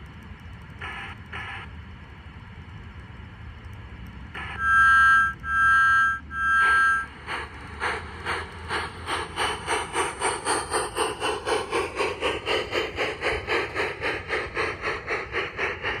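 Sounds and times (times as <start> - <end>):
model steam locomotive chuffing: 6.6 - 16.0.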